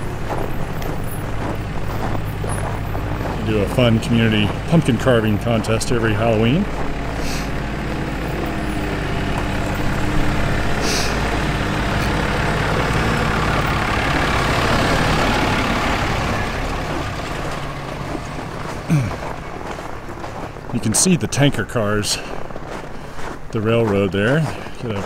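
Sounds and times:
truck engine running: 0.0 - 25.0
air brakes hissing: 7.2 - 7.6, 10.8 - 11.3.

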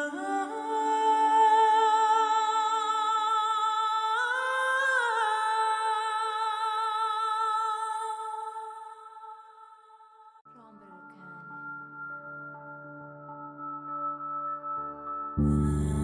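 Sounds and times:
wordless humming vocal music: 0.0 - 11.6, 15.4 - 16.0.

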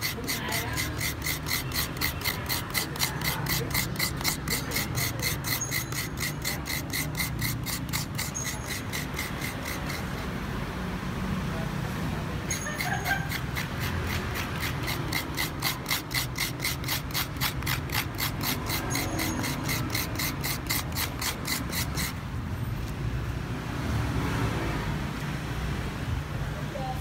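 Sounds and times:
metal utensil scraping coconut: 0.0 - 10.6, 12.4 - 23.0.

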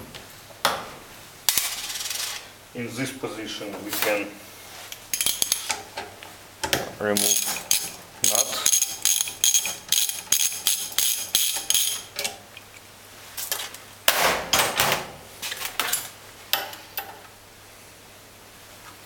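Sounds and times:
metal tools clattering: 4.9 - 5.8, 7.1 - 12.4
ratchet wrench clicking: 7.2 - 12.1.

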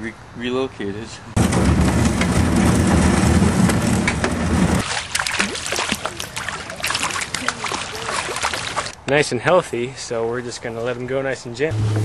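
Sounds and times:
fish splashing in water: 4.8 - 9.0.

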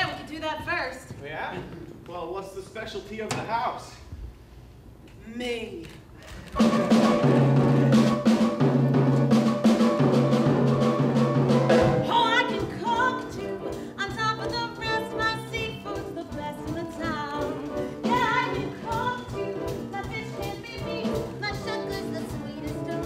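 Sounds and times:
musical accompaniment chords: 6.6 - 23.0
woman singing: 12.0 - 23.0.

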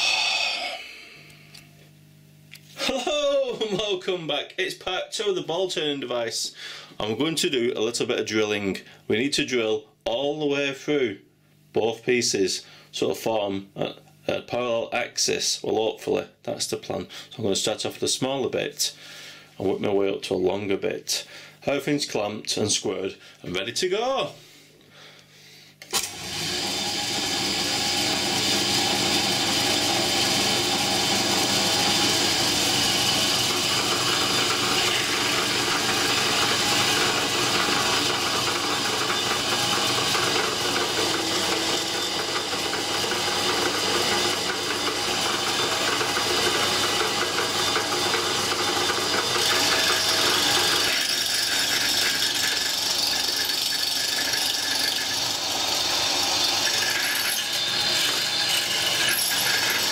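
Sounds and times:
drill bit cutting metal hiss: 0.0 - 1.1, 26.0 - 59.9
pillar drill whirring: 25.8 - 59.9.

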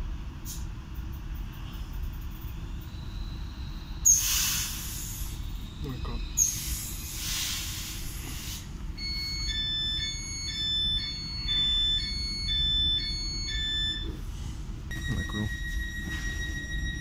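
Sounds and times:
train rumbling low: 0.0 - 17.0
hiss: 4.1 - 5.4, 6.4 - 8.7
two-tone electronic beep: 9.0 - 14.1, 14.9 - 17.0.

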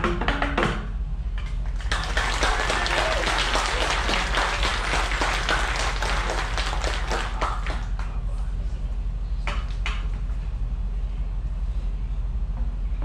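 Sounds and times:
audience applause: 1.7 - 8.2.

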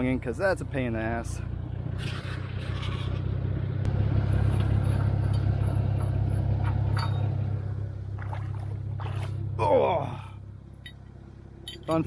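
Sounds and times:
car engine idling: 0.0 - 12.0
metallic clink of winch hook: 6.9 - 7.4, 10.8 - 12.0.

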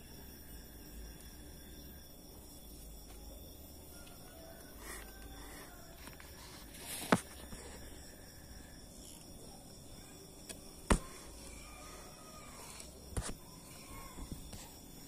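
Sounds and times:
faint steady background noise: 0.0 - 15.0.

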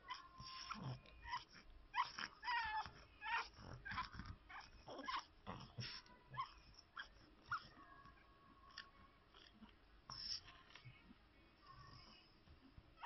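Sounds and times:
puppy crying: 0.0 - 7.8.

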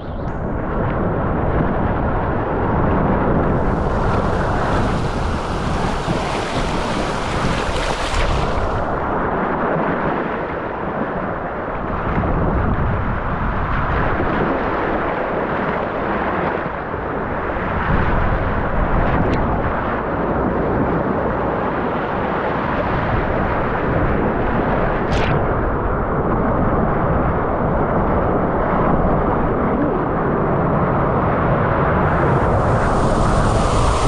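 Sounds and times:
fast-flowing water rushing and splashing: 3.4 - 9.0.

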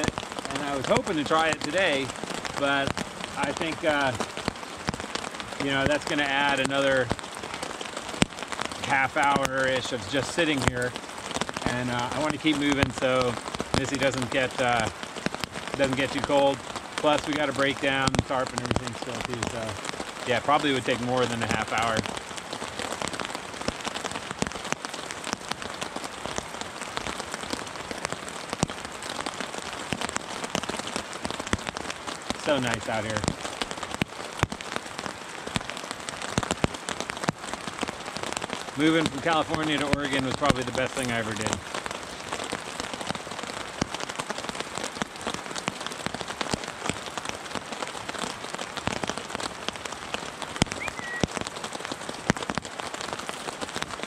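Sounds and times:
rain on a tarp: 0.0 - 54.0
short high chirp: 50.8 - 51.3.

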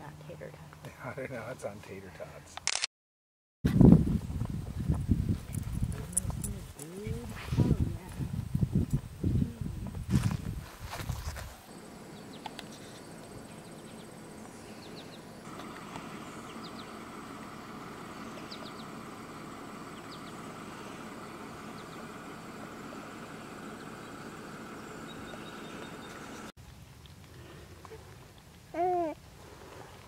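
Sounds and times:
steady drone: 11.8 - 26.5
bird chirps: 12.0 - 19.0, 19.8 - 22.6, 23.6 - 26.5.

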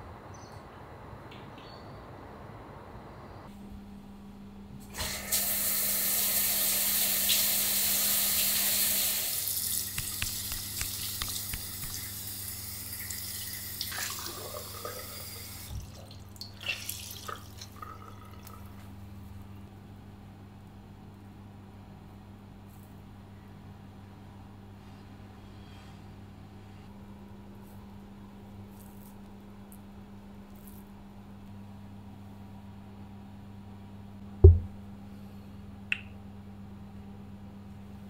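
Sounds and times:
tap water running into basin: 5.0 - 18.8
water splashing and dripping: 13.0 - 18.6.

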